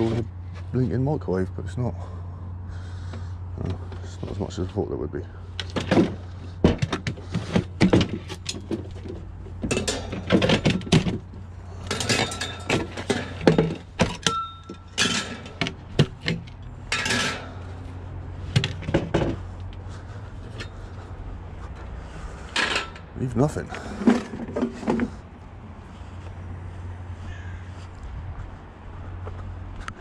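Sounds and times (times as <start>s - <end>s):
metal and plastic clattering: 5.5s - 20.9s, 22.4s - 25.2s.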